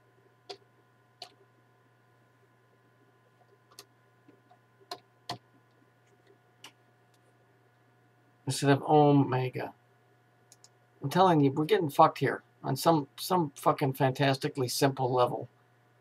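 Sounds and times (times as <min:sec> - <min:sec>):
faint electrical hum: 0:00.0 - 0:16.0
computer keyboard keys clicking: 0:03.7 - 0:03.9, 0:10.5 - 0:10.7.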